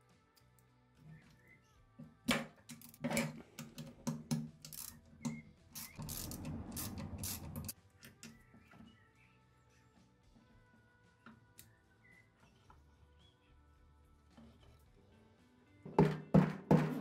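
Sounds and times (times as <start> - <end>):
hand ratchet clicking: 3.6 - 5.0, 5.7 - 7.8.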